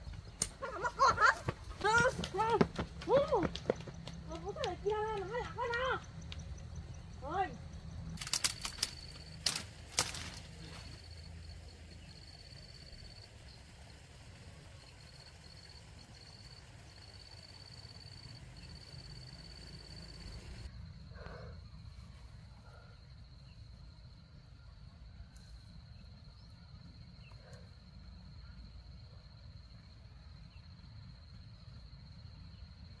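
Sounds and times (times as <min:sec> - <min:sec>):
high insect trill: 0:00.0 - 0:24.4
sharp clicks: 0:08.2 - 0:10.4.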